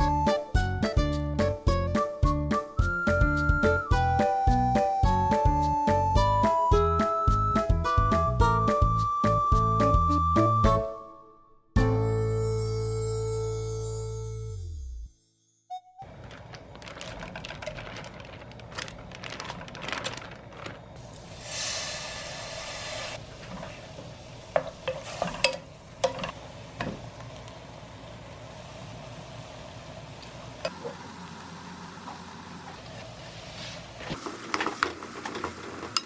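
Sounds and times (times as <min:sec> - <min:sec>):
seafood sizzling in oil: 0:21.2 - 0:26.8.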